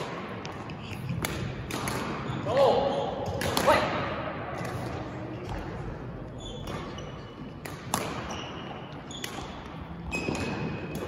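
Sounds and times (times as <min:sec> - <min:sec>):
rackets hitting shuttlecock: 0:00.0 - 0:05.9, 0:06.5 - 0:11.0
shoes squeaking on court: 0:06.3 - 0:11.0.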